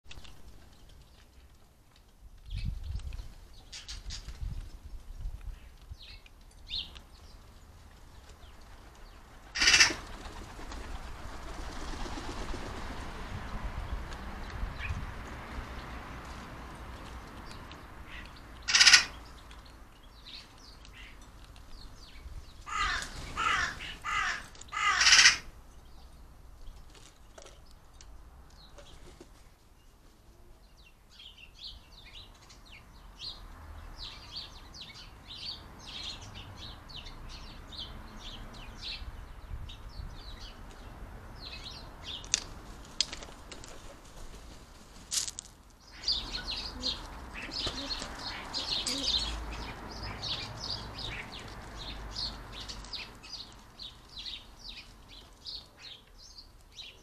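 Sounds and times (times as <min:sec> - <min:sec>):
small birds twittering faintly: 0:00.1 - 0:57.0
crow cawing: 0:09.6 - 0:10.0, 0:18.1 - 0:19.2, 0:22.7 - 0:25.5.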